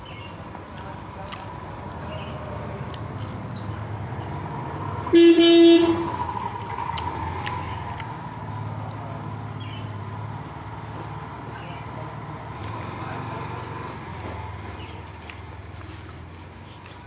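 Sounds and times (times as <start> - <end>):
vehicle horn honk: 5.1 - 6.2.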